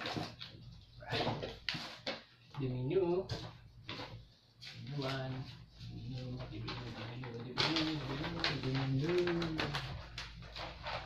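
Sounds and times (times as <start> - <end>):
paper rustling and crackling: 3.3 - 11.0.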